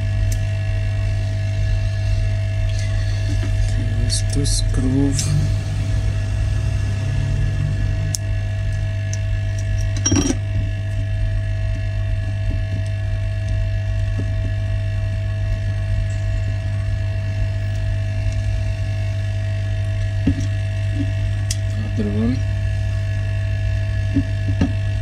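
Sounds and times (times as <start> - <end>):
electrical hum: 0.0 - 25.0.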